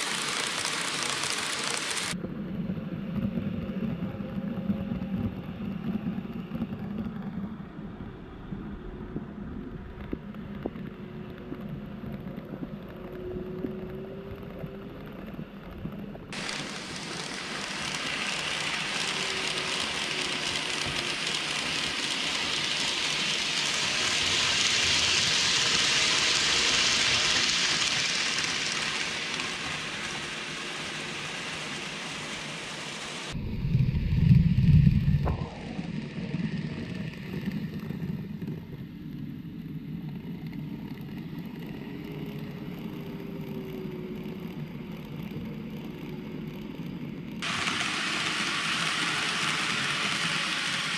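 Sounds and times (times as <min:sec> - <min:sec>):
hiss of passing train: 0:00.0 - 0:02.2, 0:16.4 - 0:33.4, 0:47.4 - 0:50.9
model train rumbling on track: 0:00.0 - 0:02.2, 0:02.8 - 0:33.5, 0:34.7 - 0:50.9
deep rumble: 0:33.3 - 0:45.1.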